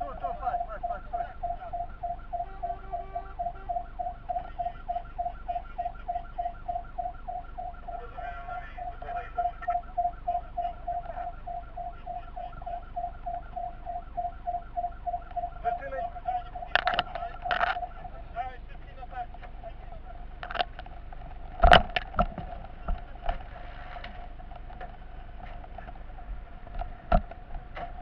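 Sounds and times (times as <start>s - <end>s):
pulsing siren tone: 0.0s - 18.7s
truck engine rumble: 0.0s - 28.0s.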